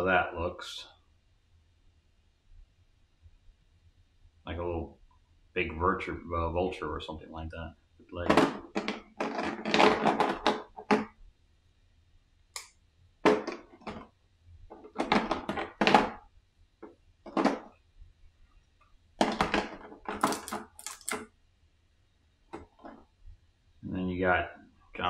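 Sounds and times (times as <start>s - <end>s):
plastic figures clicking and clattering: 19.2s - 21.3s.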